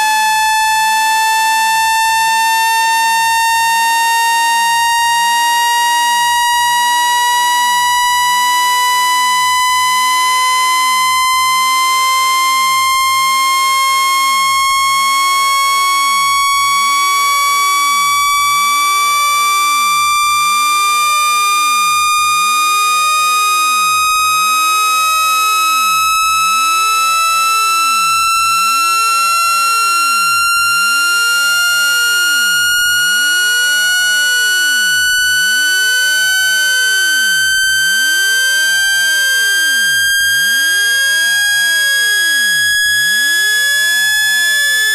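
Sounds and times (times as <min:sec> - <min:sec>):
rising buzzy electronic tone: 0:25.6 - 0:44.9.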